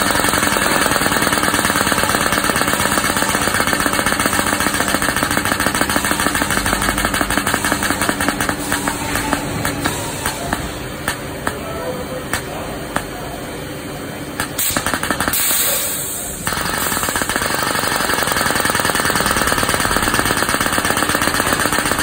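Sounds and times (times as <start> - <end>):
pneumatic booster rattling: 0.0 - 11.6, 14.4 - 22.0
air hiss: 14.6 - 17.2.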